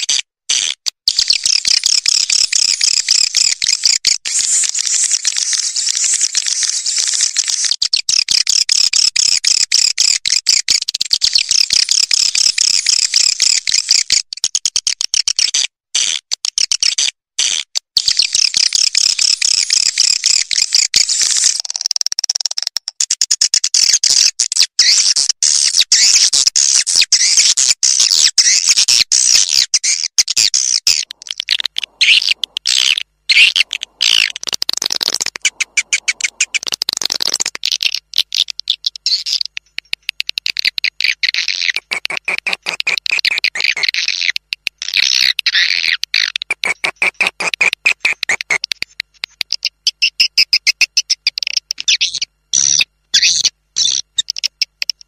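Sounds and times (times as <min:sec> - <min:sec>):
swiftlets chittering: 0:31.1 - 0:37.6.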